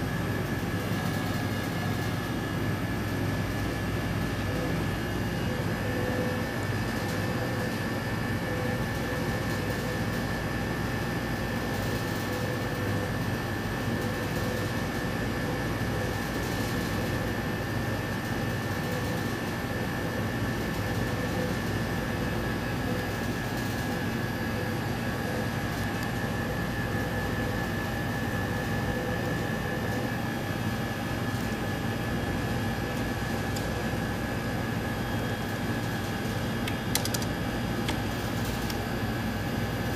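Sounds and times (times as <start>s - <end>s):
cooling fans humming: 0.0s - 39.9s.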